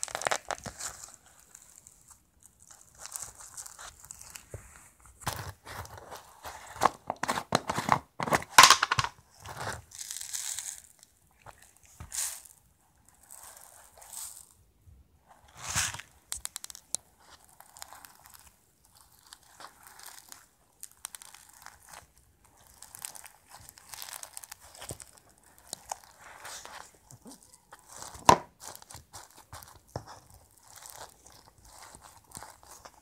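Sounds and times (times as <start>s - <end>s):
beaded slime clicking and crackling: 0.0s - 4.5s, 9.8s - 14.6s, 16.0s - 33.0s.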